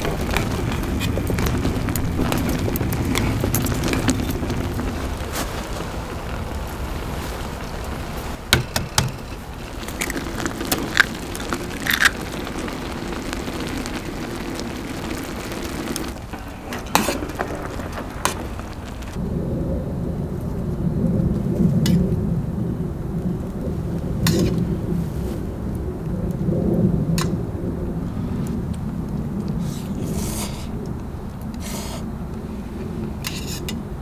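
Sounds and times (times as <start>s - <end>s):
soup boiling in pan: 0.0s - 19.2s
firewood crackling and popping: 0.0s - 34.0s
low steady rumble: 0.0s - 34.0s.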